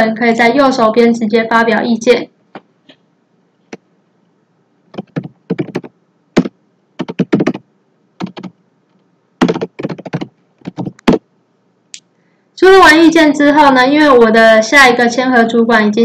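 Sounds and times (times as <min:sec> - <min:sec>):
typing on computer keyboard: 0:04.9 - 0:07.6, 0:08.2 - 0:08.6, 0:09.4 - 0:11.2.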